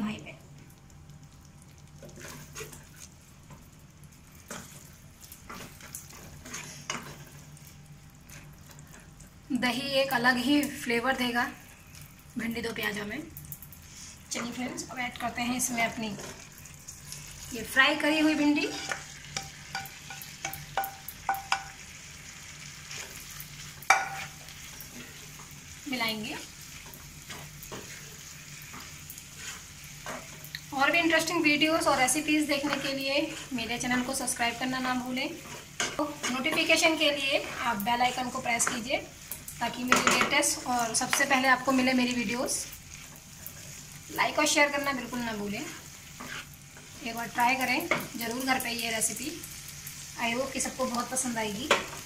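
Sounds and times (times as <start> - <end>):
masala sizzling: 0.0 - 52.0
spatula scraping a pan: 2.1 - 3.1, 4.5 - 7.4, 18.0 - 21.7, 22.8 - 25.5, 26.4 - 30.5, 31.2 - 34.2, 35.3 - 38.9, 45.5 - 47.0
spatula knocking against pans: 18.7 - 21.8, 23.9 - 24.4, 39.9 - 40.4.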